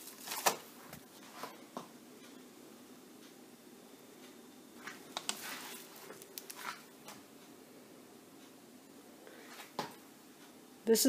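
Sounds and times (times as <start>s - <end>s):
light rustles on wax paper: 4.8s - 6.9s.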